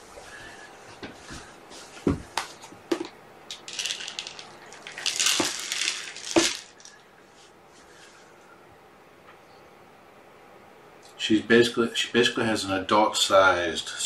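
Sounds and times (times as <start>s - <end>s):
dry kibble rattling into bowl: 2.9s - 7.0s.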